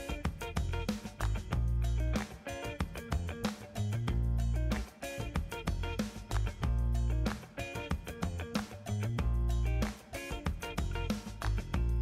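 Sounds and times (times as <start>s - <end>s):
plucked notes over low bass: 0.5s - 2.2s, 3.1s - 4.8s, 5.4s - 7.3s, 8.2s - 9.9s, 10.6s - 12.0s.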